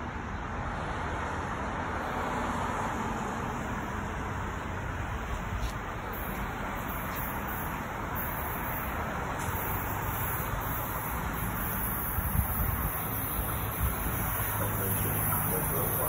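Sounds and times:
distant traffic: 0.0 - 16.0
wind on microphone: 12.0 - 14.4.

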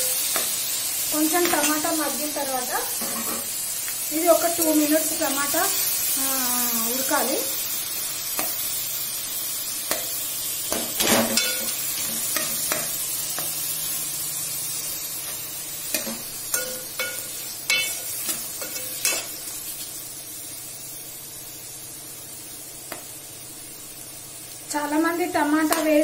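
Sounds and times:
onions sizzling in a pot: 0.0 - 26.0
metal spoon clinking on a pot: 11.0 - 11.7, 15.9 - 18.0.

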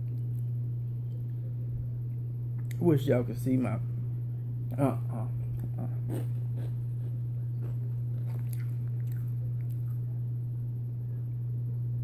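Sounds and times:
steady low hum: 0.0 - 12.0
person chewing crunchy chips: 5.4 - 10.1.

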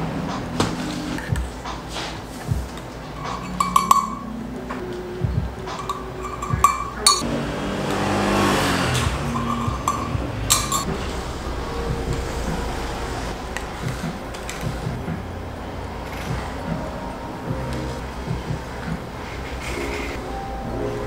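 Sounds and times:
metal spoon clinking on metal cup: 3.2 - 4.3, 5.8 - 7.3, 9.3 - 10.9.

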